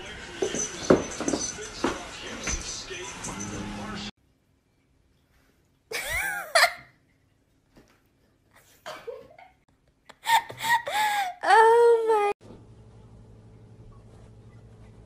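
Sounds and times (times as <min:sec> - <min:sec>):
high-pitched laughter: 0:05.9 - 0:06.9.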